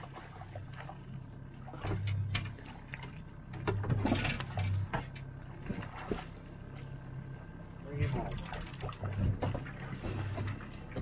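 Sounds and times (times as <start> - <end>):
outboard motor running: 0.0 - 11.0
fishing tackle clicking and rattling: 8.3 - 9.0.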